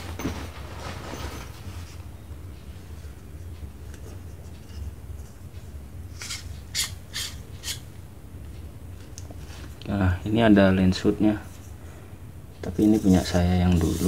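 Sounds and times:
small objects rustling: 0:00.0 - 0:02.0
low steady hum: 0:00.0 - 0:14.0.

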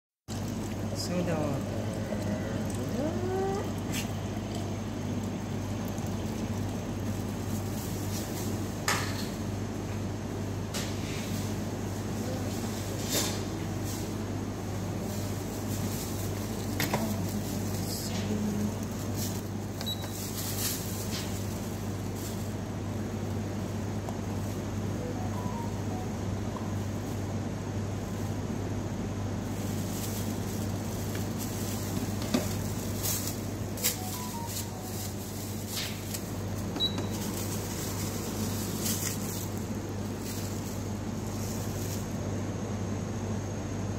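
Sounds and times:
low machine hum: 0:00.3 - 0:43.9
soft rustles: 0:29.5 - 0:42.2.

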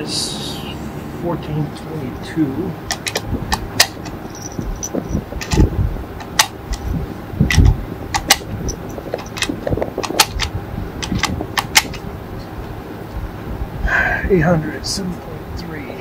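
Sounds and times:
cartridges clicking into magazine: 0:02.9 - 0:04.2, 0:05.4 - 0:06.9, 0:07.5 - 0:12.0
magazine being handled: 0:02.9 - 0:06.9, 0:07.5 - 0:12.0.

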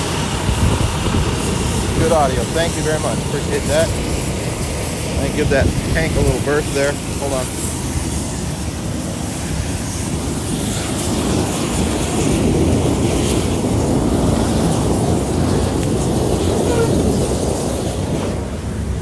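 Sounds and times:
propane tank venting: 0:00.0 - 0:19.0
wildfire roaring: 0:00.0 - 0:19.0.

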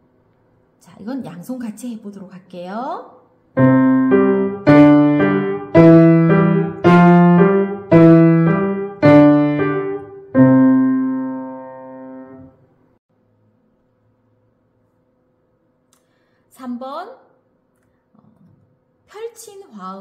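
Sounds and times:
upright piano playing: 0:03.6 - 0:12.6.

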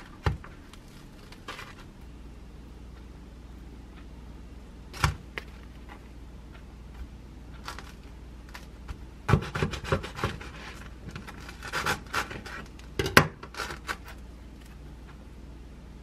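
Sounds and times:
knife sawing through bread crust: 0:09.3 - 0:12.6.

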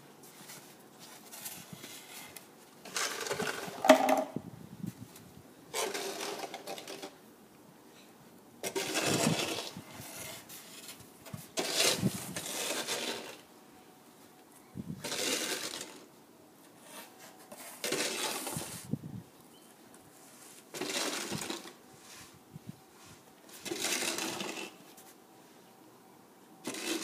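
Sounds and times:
snow shovel scraping concrete: 0:00.4 - 0:04.1, 0:05.7 - 0:07.2, 0:08.6 - 0:13.5, 0:15.0 - 0:16.1, 0:16.8 - 0:18.9, 0:20.4 - 0:22.4, 0:23.1 - 0:25.0, 0:26.6 - 0:27.0.

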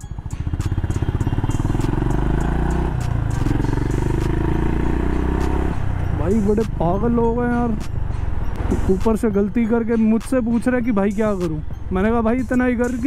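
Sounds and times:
motorcycle engine revving: 0:00.0 - 0:06.9.

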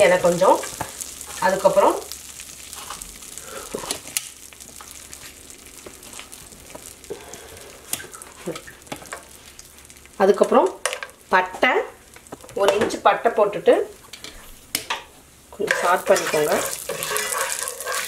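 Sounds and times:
butter sizzling with small pops: 0:00.0 - 0:18.0.

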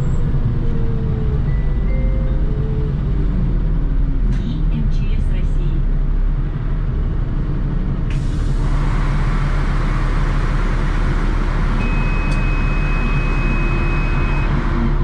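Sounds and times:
bus engine idling: 0:00.0 - 0:15.0
high steady beep: 0:11.8 - 0:14.5.

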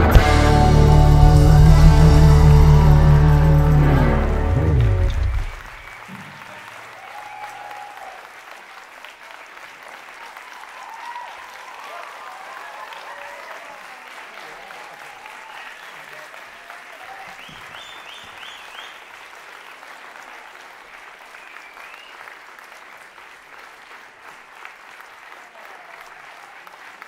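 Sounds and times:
audience applauding: 0:00.0 - 0:27.0.

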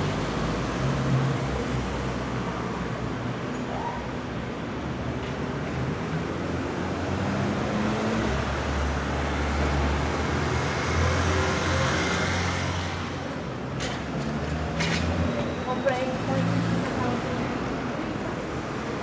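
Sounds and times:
road and tyre noise: 0:00.0 - 0:19.0.

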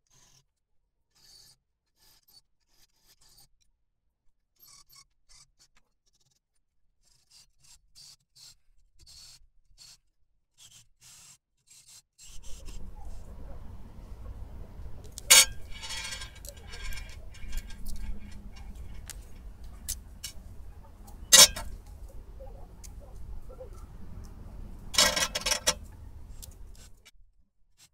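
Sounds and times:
hand saw rasping through metal: 0:15.1 - 0:22.0, 0:24.9 - 0:27.0.

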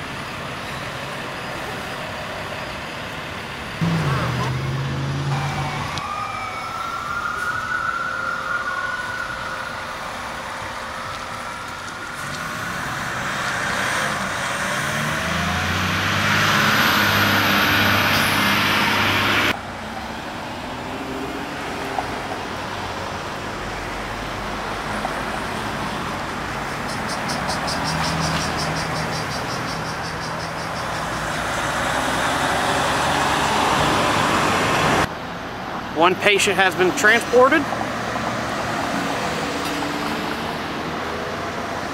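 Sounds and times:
street noise: 0:00.0 - 0:41.9
siren wailing: 0:03.8 - 0:14.2, 0:15.0 - 0:20.0.

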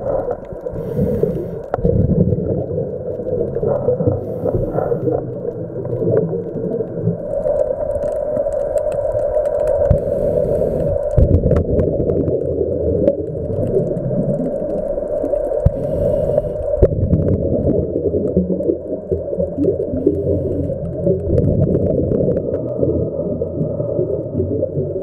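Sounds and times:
exhaled bubbles: 0:00.0 - 0:25.0
underwater regulator rumble: 0:09.6 - 0:25.0.

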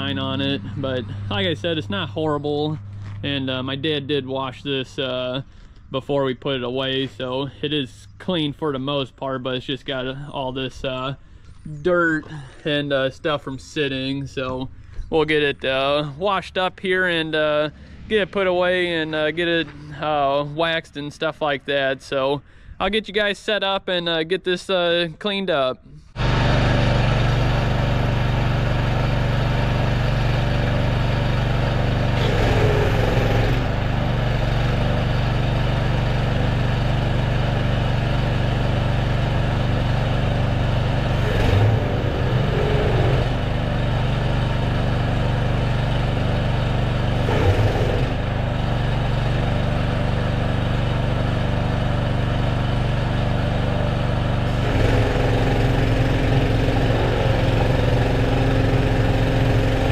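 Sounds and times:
small engine running: 0:00.0 - 0:05.8, 0:26.0 - 0:59.9.

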